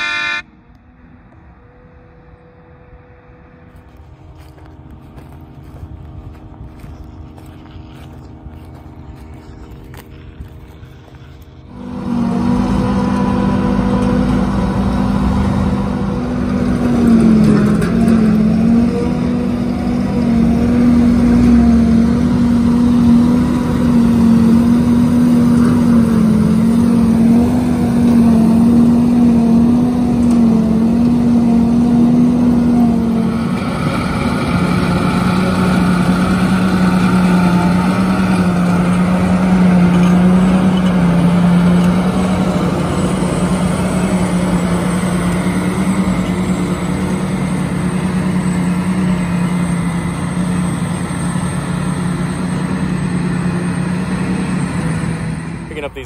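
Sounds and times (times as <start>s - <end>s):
forage harvester droning: 0.0s - 56.0s.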